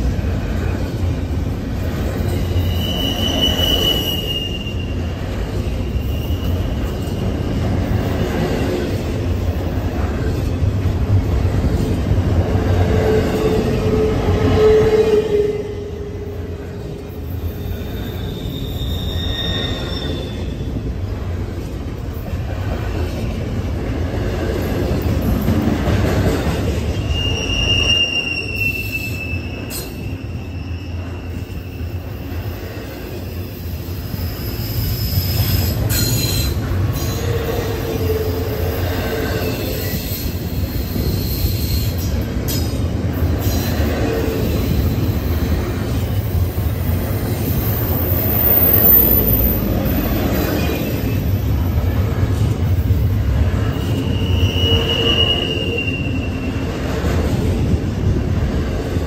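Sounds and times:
train wheels rumbling on rails: 0.0 - 59.0
wheel squeals: 2.2 - 7.5, 17.5 - 20.8, 26.8 - 32.2, 53.6 - 56.8.

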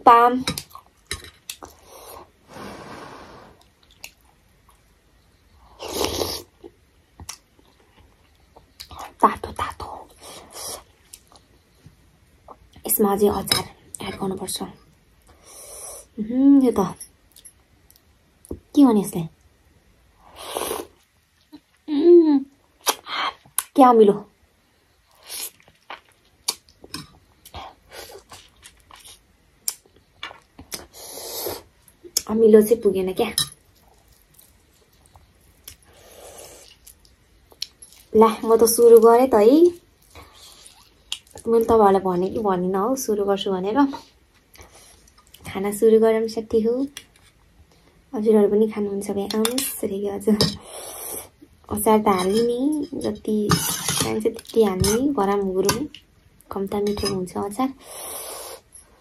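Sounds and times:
breathy noise: 1.8 - 3.6.

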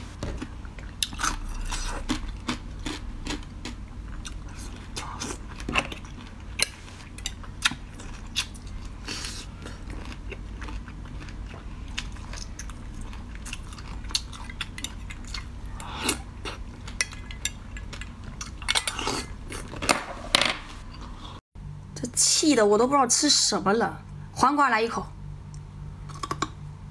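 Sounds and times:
ice being chewed: 0.4 - 6.3, 7.2 - 19.8.

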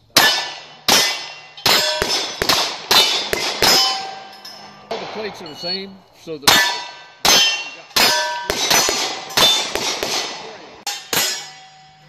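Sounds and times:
steel plate ringing: 0.0 - 5.9, 6.5 - 9.8, 10.9 - 12.0
gunshots: 0.2 - 4.3, 4.9 - 5.4, 6.5 - 11.4.

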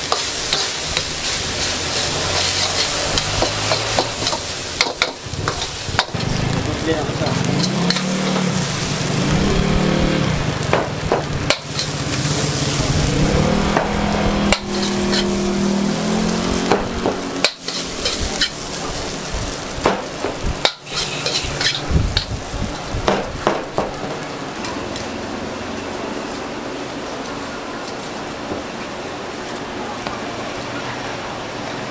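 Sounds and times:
metal spatula scraping pan: 0.0 - 6.4, 7.2 - 9.1, 11.5 - 12.8, 13.7 - 15.5, 17.4 - 18.7, 20.6 - 22.3
rice sizzling in a wok: 0.0 - 26.7.

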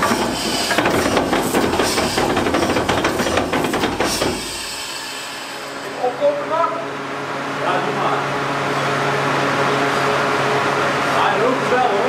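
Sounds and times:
diesel engine clatter: 0.0 - 4.8.

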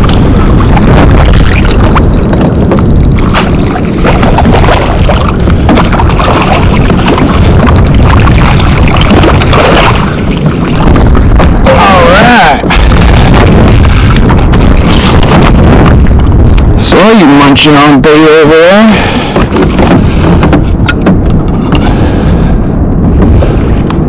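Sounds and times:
kayak knocks and splashes: 0.0 - 16.9, 19.0 - 22.2
wind buffeting microphone: 0.0 - 24.0.

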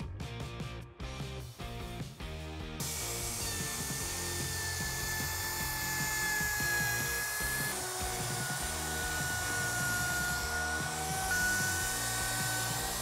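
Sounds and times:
router whining: 2.8 - 13.0.

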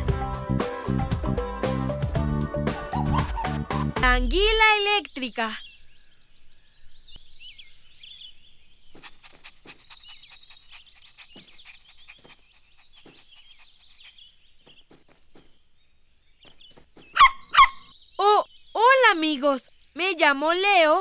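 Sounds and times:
small birds chirping and trilling: 4.3 - 21.0.

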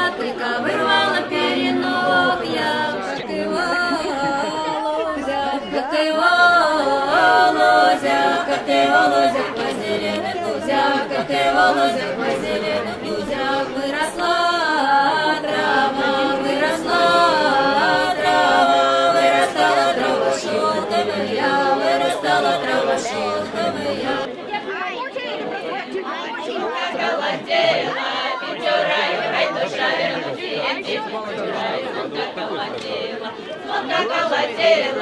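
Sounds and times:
group singing without instruments: 0.0 - 24.3, 26.5 - 35.0.

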